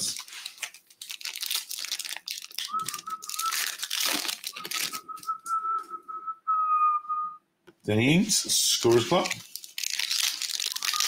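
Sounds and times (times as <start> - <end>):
cards being handled: 0.0 - 5.4
foil wrapper crinkling: 0.0 - 5.4, 8.7 - 11.0.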